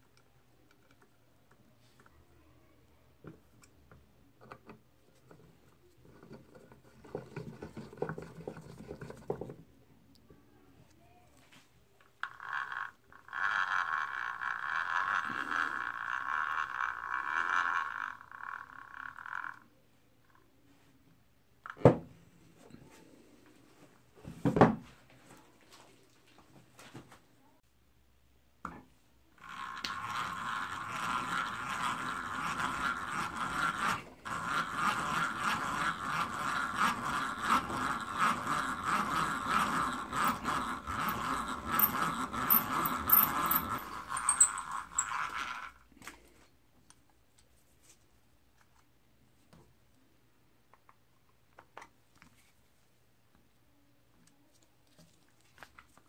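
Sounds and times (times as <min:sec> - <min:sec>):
hand-cranked drill grinding: 0:12.2 - 0:19.7, 0:29.4 - 0:46.1.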